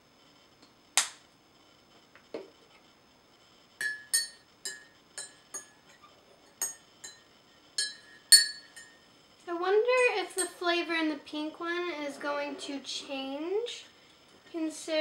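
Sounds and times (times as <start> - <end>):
spoon clinking in teacup: 3.8 - 6.0, 6.6 - 9.0.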